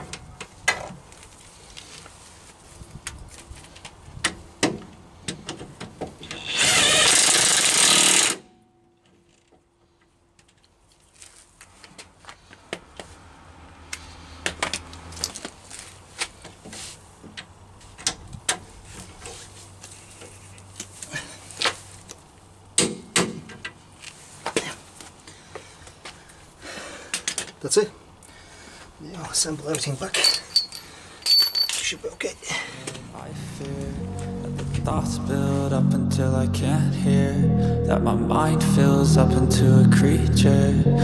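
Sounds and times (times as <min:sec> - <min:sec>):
hand tools clicking on metal: 0:30.1 - 0:32.0.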